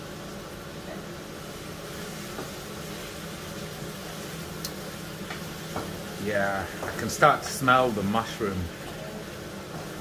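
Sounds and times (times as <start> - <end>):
range hood fan humming: 0.0 - 10.0
vegetables sizzling in a pan: 0.0 - 10.0.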